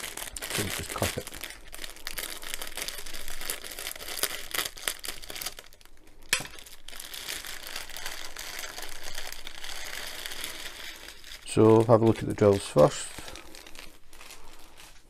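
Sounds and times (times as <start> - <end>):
scissors snipping plastic bag: 0.0 - 1.5, 11.4 - 13.4
plastic packets crinkling: 0.0 - 15.0.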